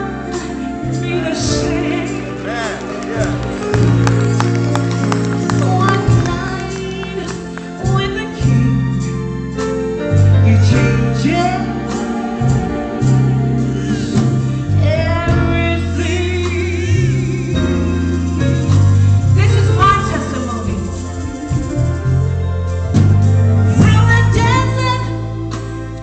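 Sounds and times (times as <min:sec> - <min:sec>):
woman singing into a microphone: 0:00.0 - 0:02.4, 0:23.8 - 0:25.4
keyboard accompaniment: 0:00.0 - 0:26.0.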